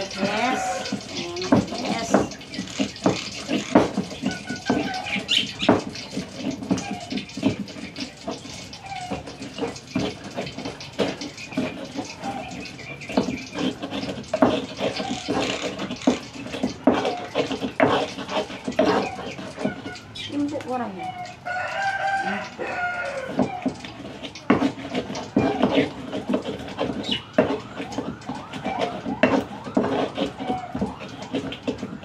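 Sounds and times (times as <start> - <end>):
gritty grinding scrape: 0.0 - 20.2, 21.6 - 32.0
pestle knocking in mortar: 0.9 - 7.8, 13.1 - 19.8, 23.3 - 28.1.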